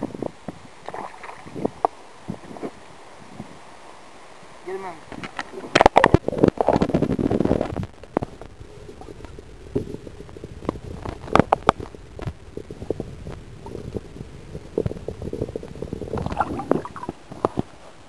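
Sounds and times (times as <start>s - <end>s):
muffled underwater rumbling: 0.0s - 18.0s
water splashing: 0.7s - 4.4s, 5.0s - 18.0s
underwater knocks and clicks: 5.1s - 17.8s.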